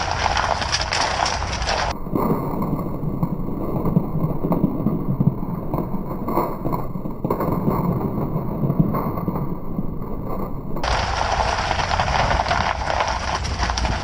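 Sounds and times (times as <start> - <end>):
road and tyre noise: 0.0 - 3.4, 7.8 - 14.0.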